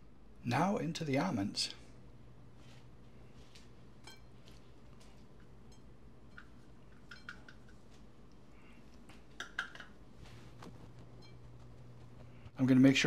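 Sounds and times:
faint steady hum: 0:00.0 - 0:13.0
light clicks against a dish: 0:06.3 - 0:07.8.

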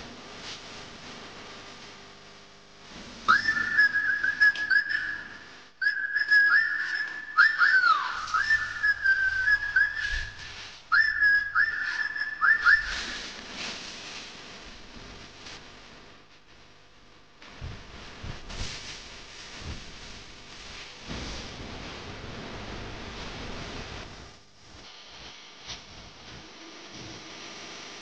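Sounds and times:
person whistling a tune: 0:03.3 - 0:13.2.

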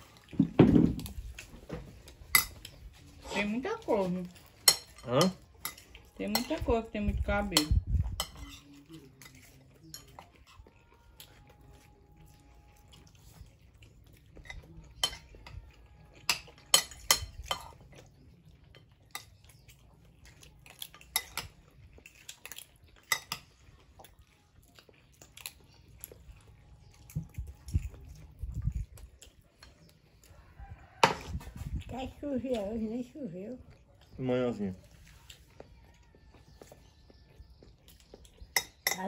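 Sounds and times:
cutlery clinking on plates: 0:02.2 - 0:03.4, 0:04.3 - 0:06.8, 0:07.4 - 0:10.6, 0:14.4 - 0:18.1, 0:20.8 - 0:23.6, 0:38.0 - 0:39.0.

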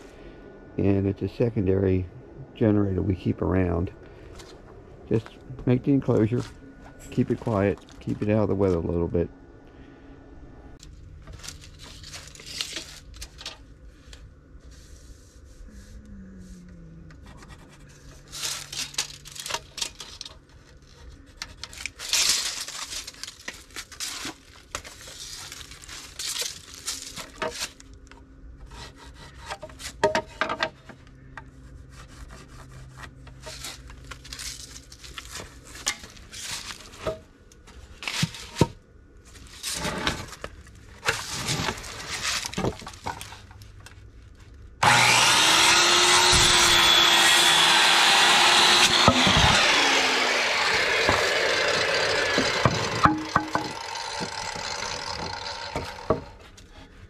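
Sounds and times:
lumber scraping on wood: 0:14.6 - 0:16.6, 0:17.2 - 0:19.6, 0:28.6 - 0:34.4, 0:44.8 - 0:57.0.

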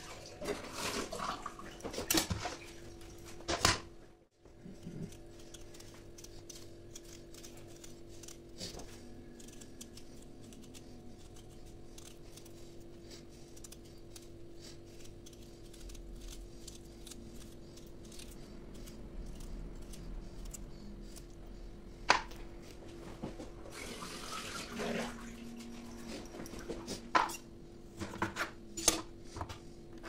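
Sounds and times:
knife cutting potato skin: 0:04.5 - 0:21.4.

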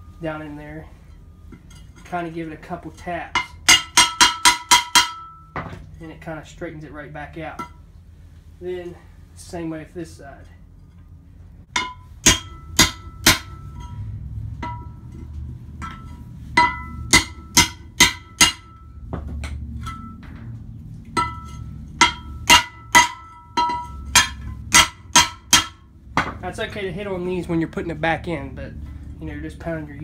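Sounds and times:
hammer striking metal: 0:03.3 - 0:05.7, 0:11.7 - 0:20.4, 0:21.1 - 0:26.5.

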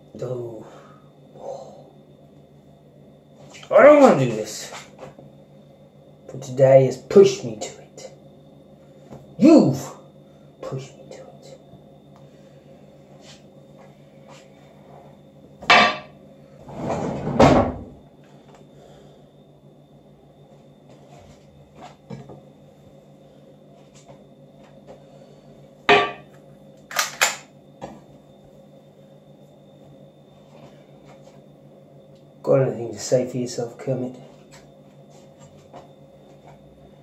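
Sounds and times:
sharp household knocks: 0:15.7 - 0:16.1, 0:25.9 - 0:26.2
quick sharp clicks: 0:26.9 - 0:27.5.

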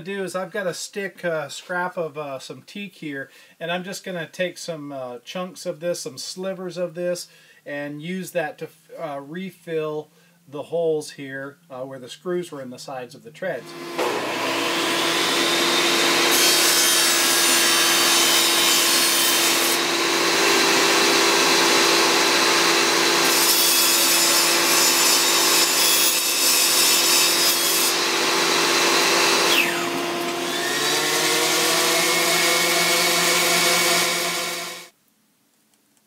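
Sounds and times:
table saw cutting wood: 0:13.6 - 0:34.9
orbital sander running: 0:13.7 - 0:16.3, 0:17.1 - 0:23.3, 0:27.9 - 0:34.9.

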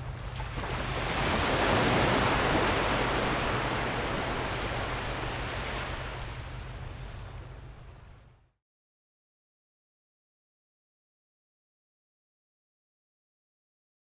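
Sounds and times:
sea surf rushing: 0:00.0 - 0:08.3
low steady hum: 0:00.0 - 0:08.6.

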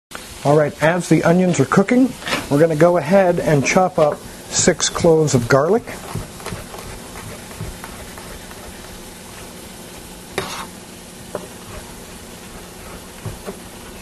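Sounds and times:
onions sizzling in a pot: 0:00.1 - 0:14.0
knife chopping on cutting board: 0:03.6 - 0:09.1, 0:11.3 - 0:14.0.

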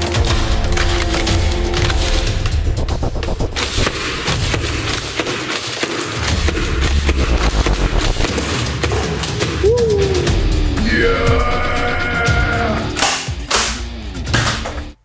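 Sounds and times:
background music: 0:00.0 - 0:15.0
foam dart blasters firing rapidly: 0:01.8 - 0:09.0.

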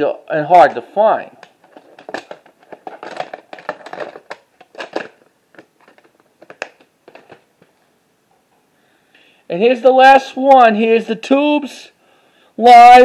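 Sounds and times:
plastic tape cases handled: 0:01.4 - 0:07.8.

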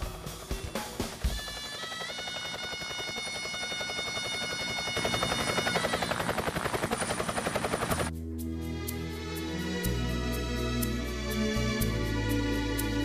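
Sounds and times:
helicopter rotor chopping: 0:00.0 - 0:08.1
turbine whine: 0:00.0 - 0:08.1
soft sustained music: 0:00.0 - 0:13.0.

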